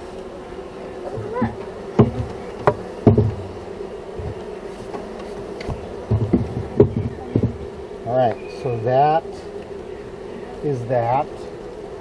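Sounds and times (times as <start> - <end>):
honeybees buzzing: 0.0 - 12.0
wooden knocks and taps: 2.0 - 3.4, 5.2 - 7.6.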